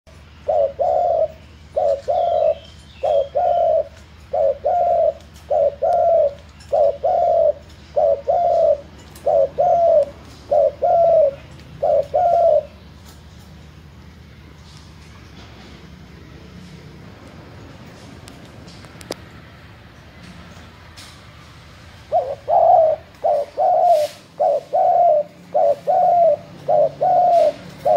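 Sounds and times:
dove cooing: 0:00.1 - 0:13.0, 0:22.0 - 0:27.9.

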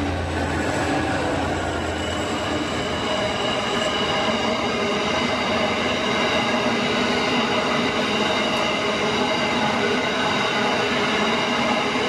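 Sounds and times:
train wheels rushing on rail: 0:00.0 - 0:12.0.

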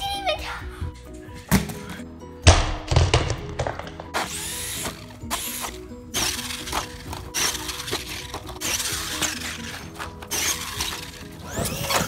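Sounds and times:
background music: 0:00.0 - 0:12.0
toy truck clattering: 0:03.0 - 0:12.0.

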